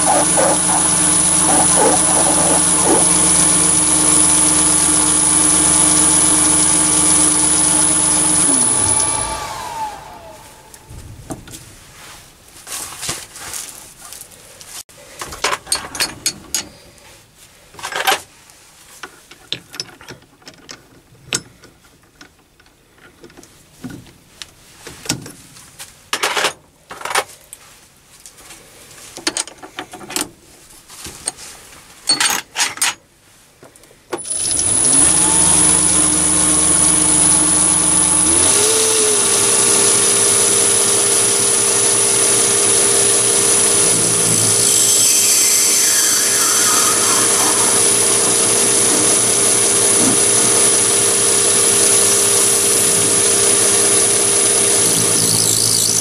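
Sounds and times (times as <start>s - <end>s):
lathe motor whine: 0.0s - 10.9s, 34.2s - 56.0s.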